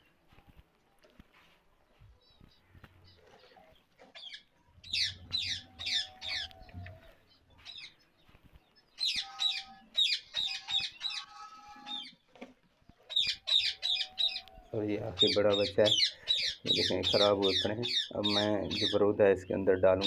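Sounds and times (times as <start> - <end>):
parrots squawking: 4.2 - 6.5, 9.0 - 12.2, 13.1 - 14.4, 15.2 - 19.0.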